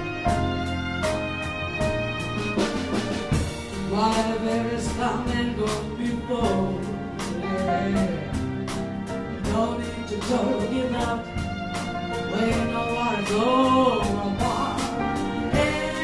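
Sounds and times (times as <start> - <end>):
drum beat: 0.0 - 6.8, 11.3 - 16.0
bass: 0.0 - 16.0
piano: 0.0 - 16.0
strings: 0.0 - 16.0.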